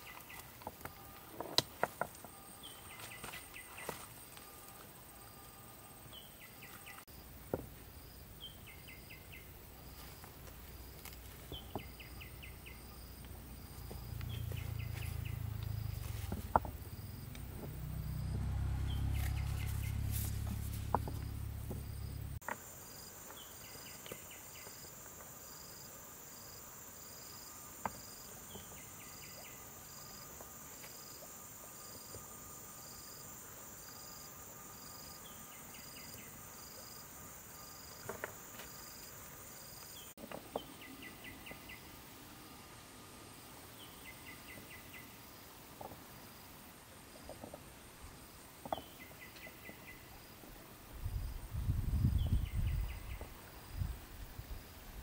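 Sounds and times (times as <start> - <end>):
insects chirping: 0.0 - 55.0
low rumble: 13.4 - 22.4.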